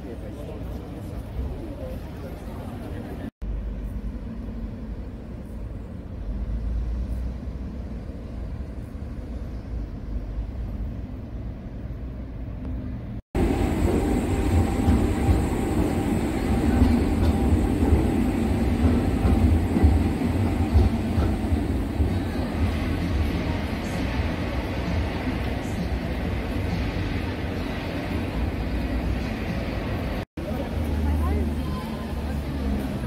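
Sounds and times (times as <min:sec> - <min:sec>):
traffic rumble: 0:00.0 - 0:33.0
tram rumbling: 0:00.0 - 0:33.0.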